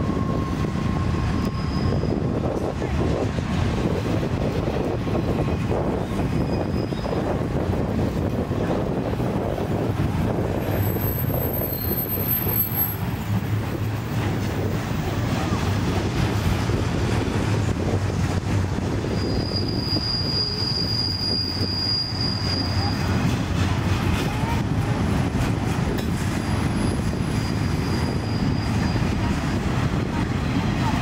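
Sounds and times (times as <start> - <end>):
high-pitched wheel squeal: 0.0 - 2.4, 6.0 - 7.4, 10.7 - 13.1, 19.0 - 23.2, 26.4 - 29.3
train wheels rumbling on rails: 0.0 - 31.0.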